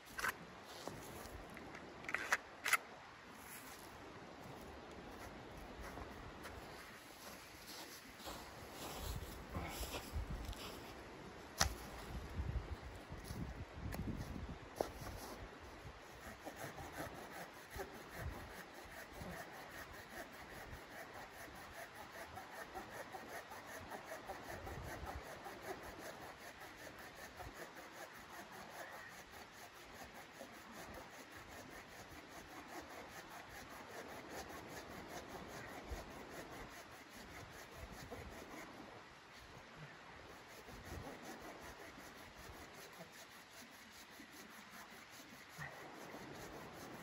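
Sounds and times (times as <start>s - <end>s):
hand saw cutting through log: 15.8s - 38.8s, 40.3s - 47.0s.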